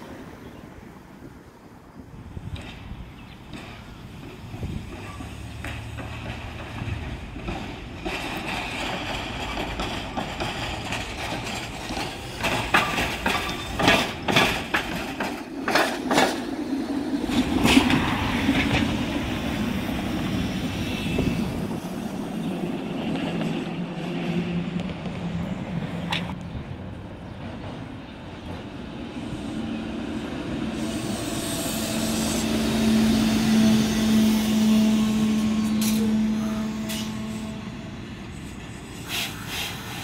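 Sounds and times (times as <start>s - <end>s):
trolley car rumble: 0.0s - 40.0s
trolley wheels clacking: 3.5s - 16.6s.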